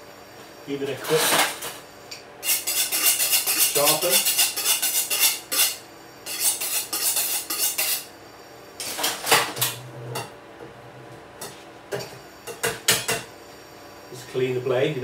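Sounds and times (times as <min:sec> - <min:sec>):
knife scraping on sharpening steel: 0:02.4 - 0:08.1.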